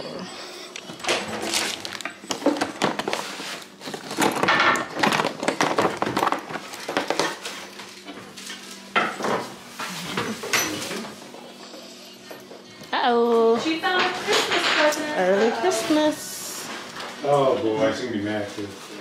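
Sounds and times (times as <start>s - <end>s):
plastic bags crinkling: 1.1s - 8.4s
small items clicking and knocking: 3.9s - 7.3s.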